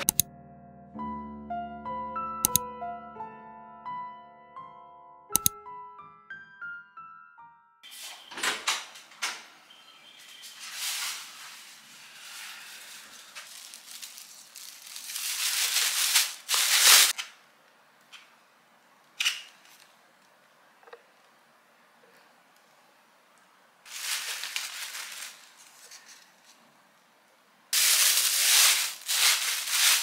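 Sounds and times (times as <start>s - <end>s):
plastic bag rustling and crinkling: 10.2s - 17.2s, 23.9s - 26.6s, 27.8s - 30.0s.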